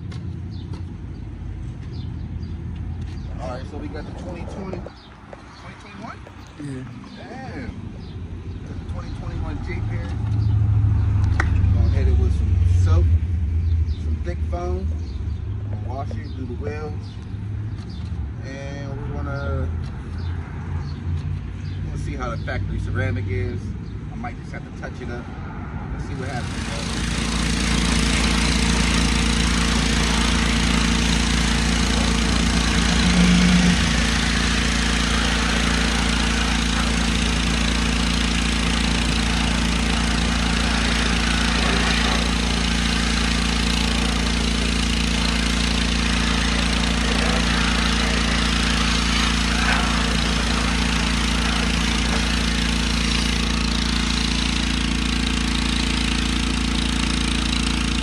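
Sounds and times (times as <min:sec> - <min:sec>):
pressure washer motor hum: 0:00.0 - 0:18.1, 0:26.0 - 0:58.0
water spray hissing: 0:26.3 - 0:58.0.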